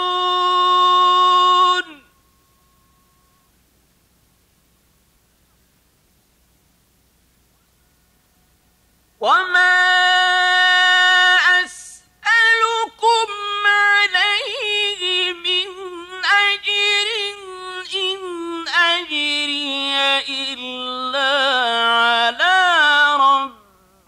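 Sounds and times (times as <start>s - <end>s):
man reciting melodically: 0.0s - 2.2s, 9.2s - 24.0s.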